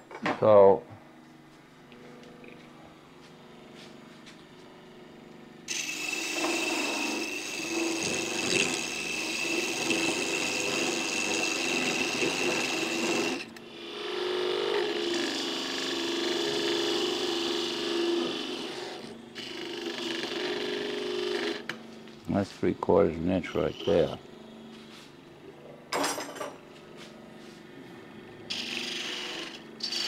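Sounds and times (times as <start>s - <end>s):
wood lathe cutting: 5.7s - 21.8s, 23.2s - 24.2s, 28.5s - 30.0s.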